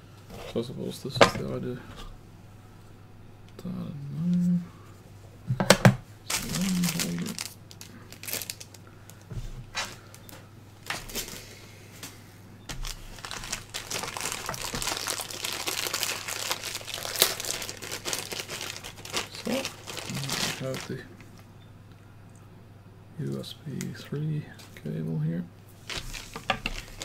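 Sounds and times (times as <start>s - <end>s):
plastic bag crinkling: 6.3s - 9.2s, 12.7s - 21.2s, 25.8s - 27.0s.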